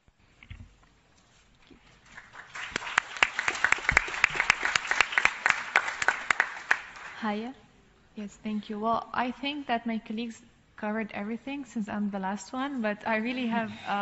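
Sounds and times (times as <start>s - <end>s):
audience applauding: 2.0s - 7.2s.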